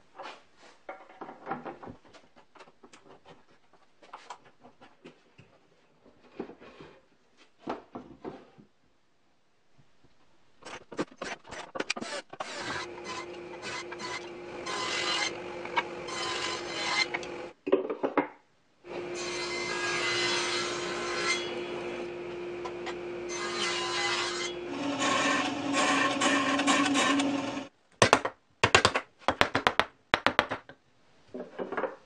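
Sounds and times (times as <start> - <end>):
bandsaw cutting wood: 12.0 - 17.5, 18.9 - 27.7
belt sander humming: 12.6 - 17.5, 18.9 - 19.6, 20.8 - 23.4.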